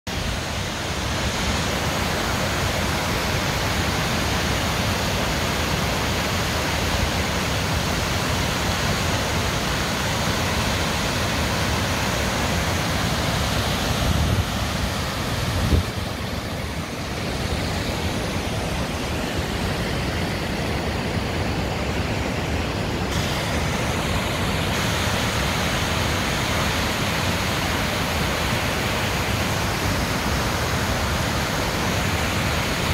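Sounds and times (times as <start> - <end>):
waterfall rushing over rocks: 0.1 - 32.9.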